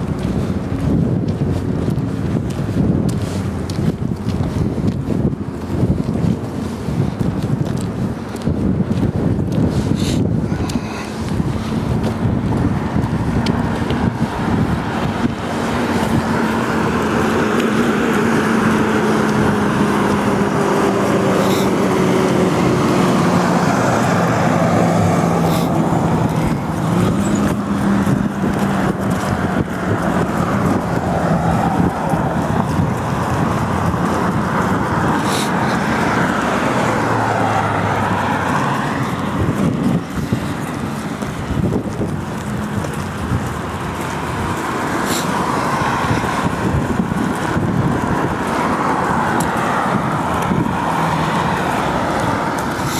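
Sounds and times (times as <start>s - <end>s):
vehicles passing on street: 0.0s - 52.9s.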